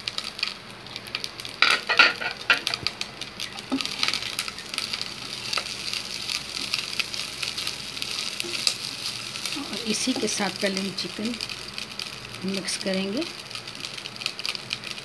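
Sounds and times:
rice sizzling in hot oil: 0:00.0 - 0:15.0
spatula scraping a wok: 0:01.6 - 0:02.8.

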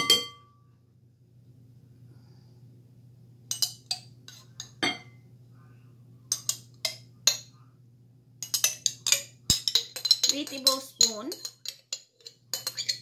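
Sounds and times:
metal spoon clinking glass: 0:00.0 - 0:00.5, 0:03.5 - 0:05.2, 0:06.3 - 0:07.5, 0:08.4 - 0:13.0.

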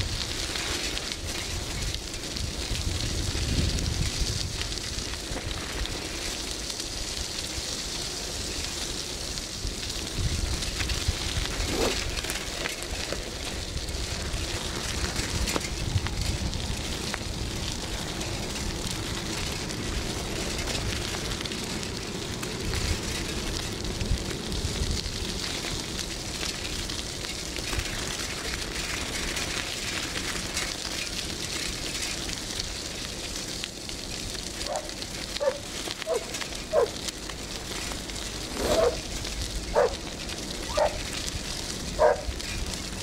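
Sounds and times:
wind buffeting microphone: 0:00.0 - 0:06.5, 0:09.5 - 0:29.2.

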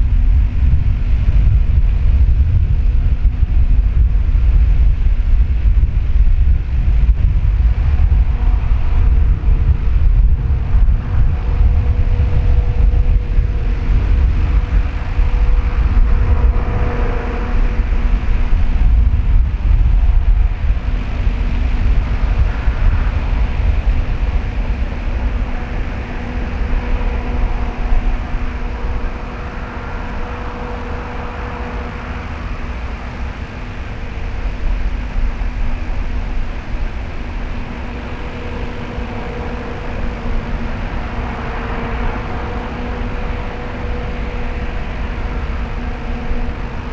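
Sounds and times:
distant diesel locomotive rumble: 0:00.0 - 0:46.9
faint turbocharger whistle: 0:10.5 - 0:19.1, 0:20.0 - 0:35.9, 0:36.9 - 0:46.9.

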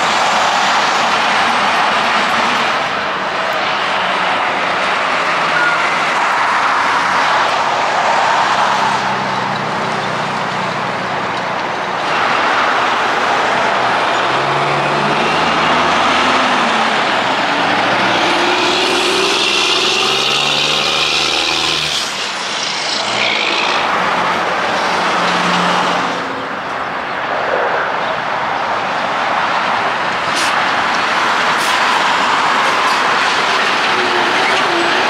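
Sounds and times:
truck diesel engine accelerating: 0:00.0 - 0:26.4
highway traffic passing: 0:00.0 - 0:35.0.

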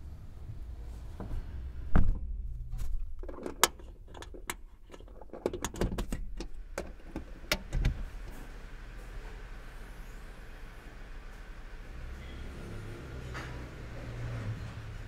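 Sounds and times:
sharp metallic clicks and knocks: 0:03.0 - 0:08.0.

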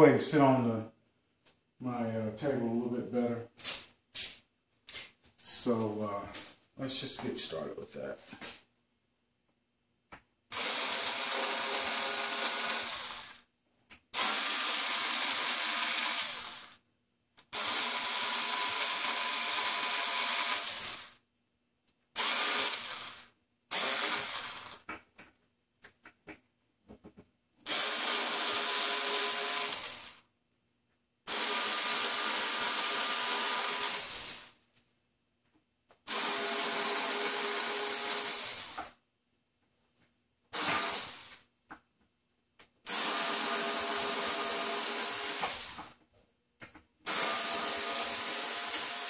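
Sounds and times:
power drill running: 0:10.5 - 0:13.4, 0:14.2 - 0:16.8, 0:17.5 - 0:21.2, 0:22.2 - 0:24.9, 0:27.7 - 0:30.2, 0:31.3 - 0:34.6, 0:36.1 - 0:39.0, 0:40.5 - 0:41.4, 0:42.9 - 0:46.0, 0:47.1 - 0:49.0.

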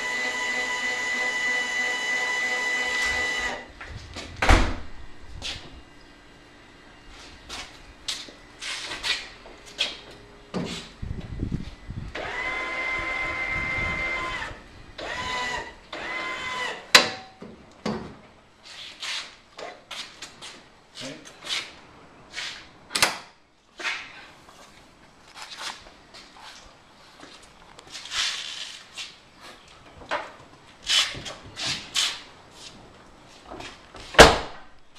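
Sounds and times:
electric actuator motor whining: 0:00.0 - 0:03.7, 0:12.0 - 0:16.8.

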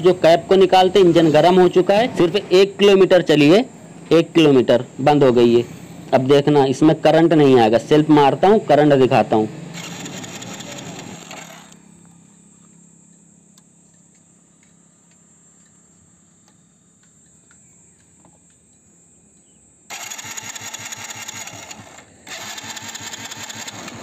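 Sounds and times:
electric starter cranking engine: 0:09.6 - 0:11.8, 0:19.9 - 0:24.0.

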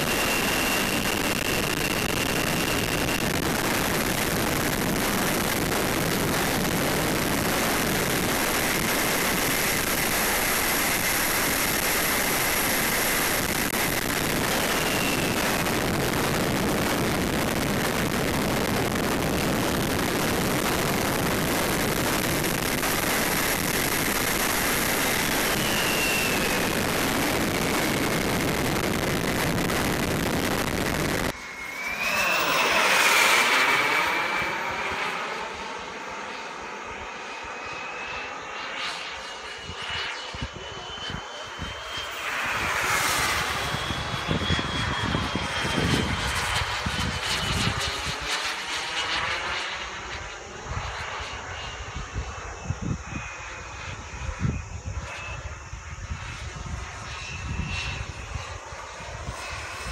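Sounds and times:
rush of air: 0:00.0 - 0:36.3
jet passing overhead: 0:00.0 - 0:59.9
jet turbine whine: 0:00.0 - 0:59.9.

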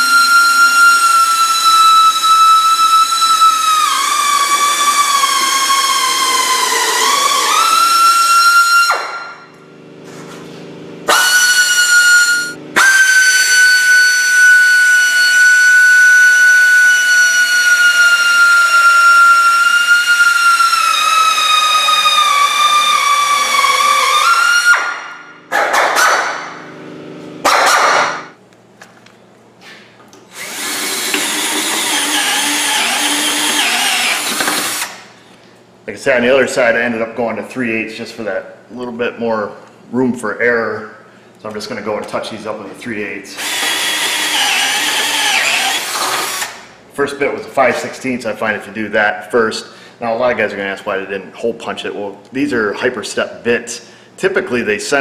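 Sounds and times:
cordless drill running: 0:00.0 - 0:09.0, 0:11.1 - 0:24.8, 0:30.3 - 0:35.1, 0:43.4 - 0:46.7
drill whining through steel: 0:00.0 - 0:09.5, 0:11.1 - 0:25.0, 0:30.3 - 0:35.2, 0:43.4 - 0:46.7.

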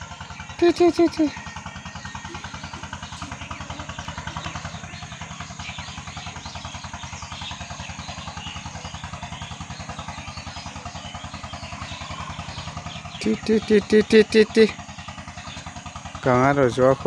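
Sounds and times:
small engine idling: 0:00.0 - 0:17.0.

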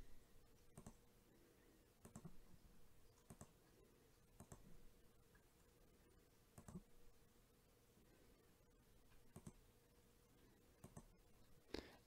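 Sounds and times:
faint computer mouse clicks: 0:00.8 - 0:01.0, 0:02.0 - 0:02.4, 0:03.2 - 0:03.6, 0:04.4 - 0:04.7, 0:06.6 - 0:06.9, 0:09.1 - 0:09.6, 0:10.8 - 0:11.1.

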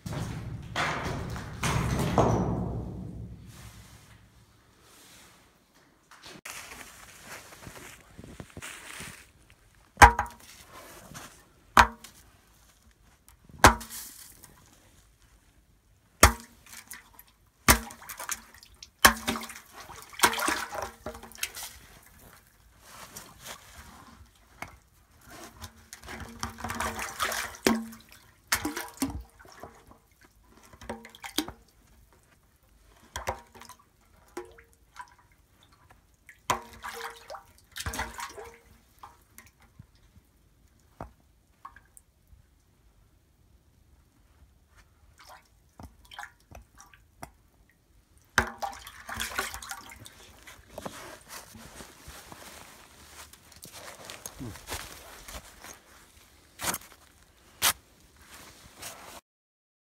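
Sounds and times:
water splashing and sloshing: 0:00.0 - 0:42.4, 0:44.8 - 0:59.2
ice knocking and cracking: 0:50.0 - 0:57.8.

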